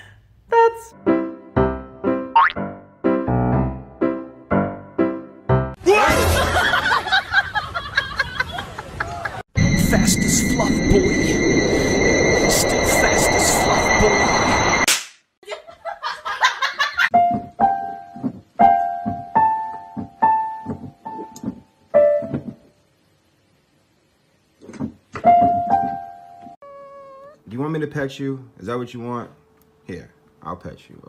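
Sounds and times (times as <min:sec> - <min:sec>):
loud hissing with high whistling: 0:09.6 - 0:14.9.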